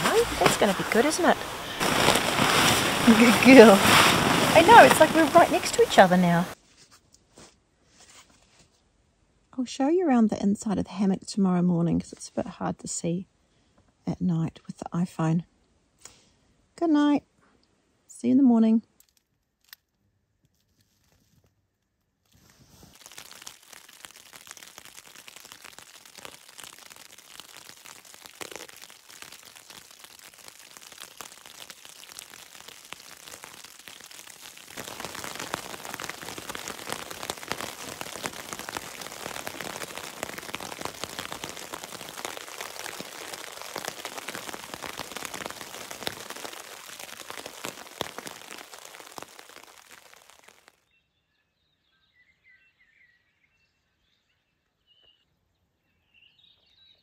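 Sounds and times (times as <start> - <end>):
rain pattering on a tarp: 0.0 - 6.6, 22.2 - 50.9.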